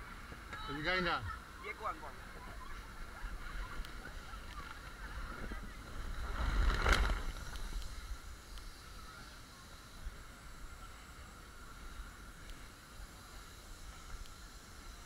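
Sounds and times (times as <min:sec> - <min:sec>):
wind rumbling on microphone: 0:01.4 - 0:15.0
body rubbing on inflatable vinyl: 0:02.4 - 0:08.1.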